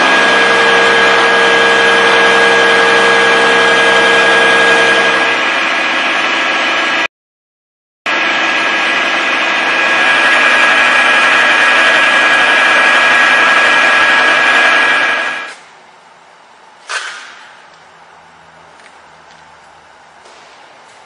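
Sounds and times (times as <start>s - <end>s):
milling machine cutting metal: 0.0s - 7.0s, 8.1s - 15.5s.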